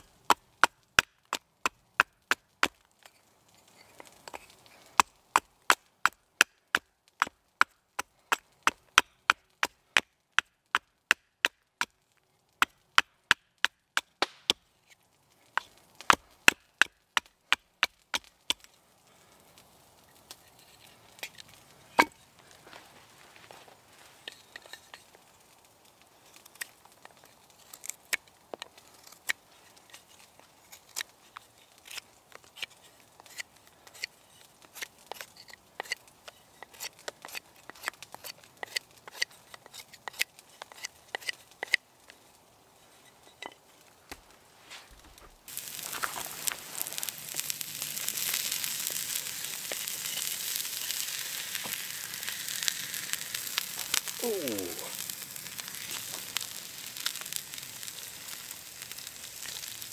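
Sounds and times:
knife shaving wood: 0:26.3 - 0:41.8, 0:44.6 - 0:59.9.

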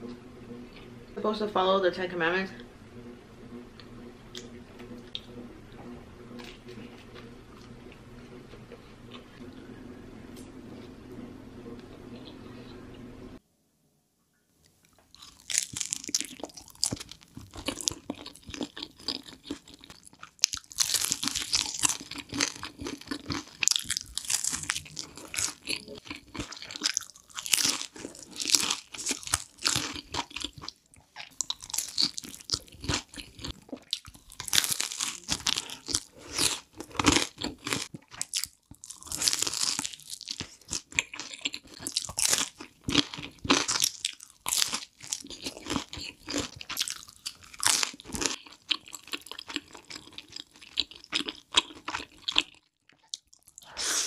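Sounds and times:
crunchy pizza chewing: 0:15.1 - 0:53.6.

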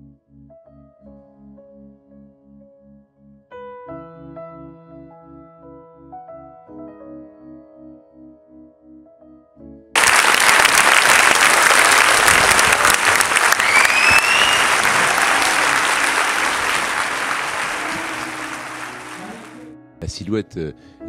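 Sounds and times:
soft keyboard music: 0:00.0 - 0:09.9, 0:15.8 - 0:21.0
audience applause: 0:10.0 - 0:19.6
rising whistle: 0:10.0 - 0:19.6.

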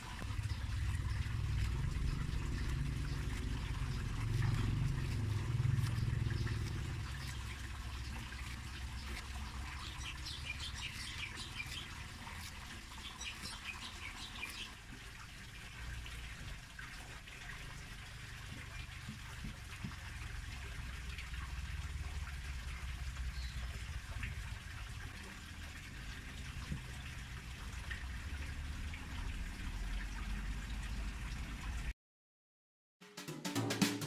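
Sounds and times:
low rumble: 0:00.2 - 0:08.2
birds chirping: 0:05.8 - 0:14.8.

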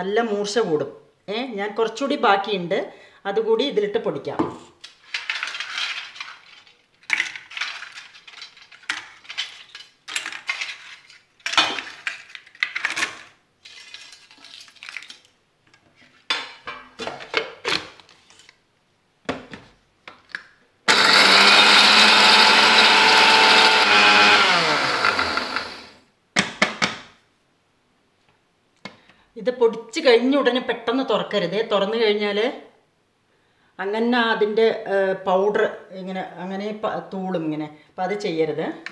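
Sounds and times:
electric mixer grinder running: 0:20.9 - 0:26.0.

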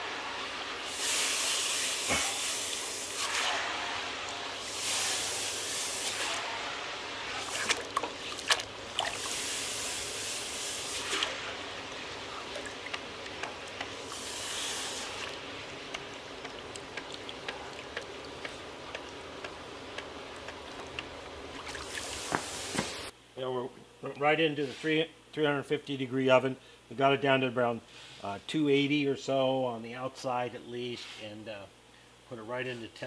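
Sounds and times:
hissing and sizzling: 0:00.0 - 0:19.3.

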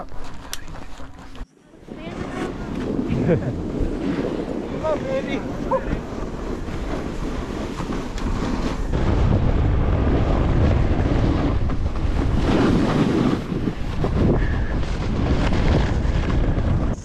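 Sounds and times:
wind rushing over microphone: 0:00.0 - 0:17.0
snowboard sliding on snow: 0:00.2 - 0:17.0.

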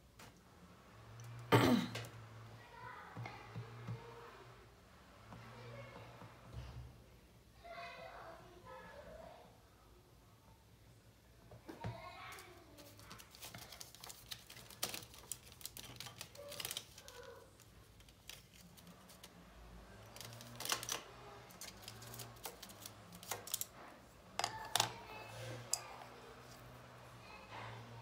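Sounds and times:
colored pencils clicking: 0:12.3 - 0:23.8.

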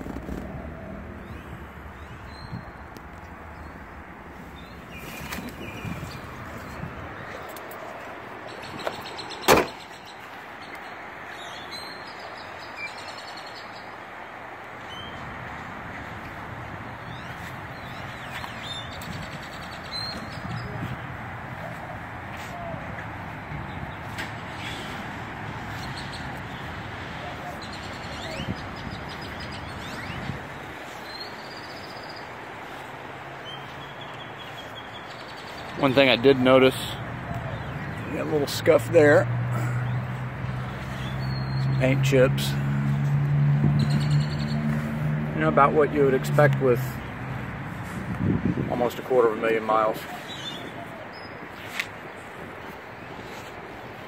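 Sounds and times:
outdoor background noise: 0:00.0 - 0:54.0
small birds chirping: 0:01.1 - 0:15.3, 0:16.8 - 0:42.6.

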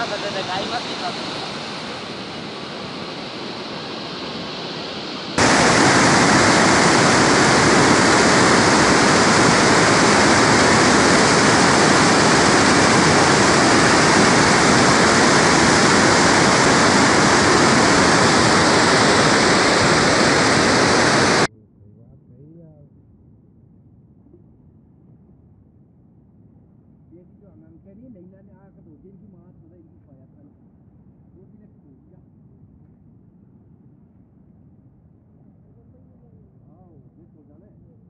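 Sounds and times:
water roaring over weir: 0:00.0 - 0:21.5.

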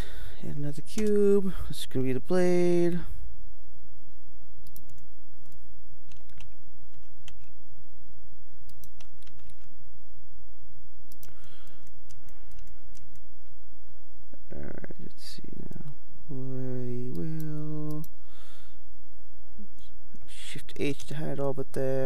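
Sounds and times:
steady low hum: 0:00.0 - 0:22.0
computer keyboard keys clicking: 0:04.7 - 0:07.5, 0:08.7 - 0:09.7, 0:11.1 - 0:13.2.

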